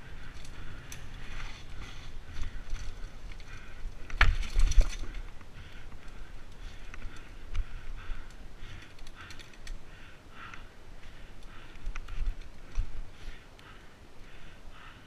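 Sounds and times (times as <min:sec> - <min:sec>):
bike rattling: 0:00.0 - 0:15.0
bike tyres on dirt trail: 0:00.0 - 0:15.0
bike knocking over rocks: 0:02.3 - 0:05.4.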